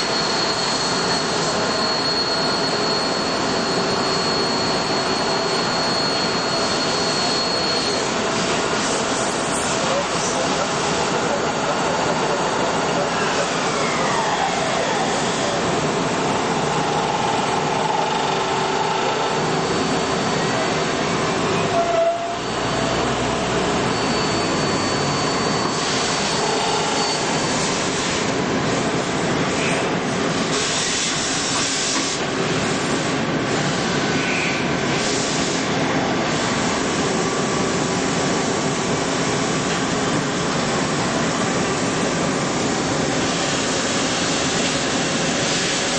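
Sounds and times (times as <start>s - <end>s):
machine whines: 0.0s - 28.4s
lathe machine noise: 0.0s - 29.7s.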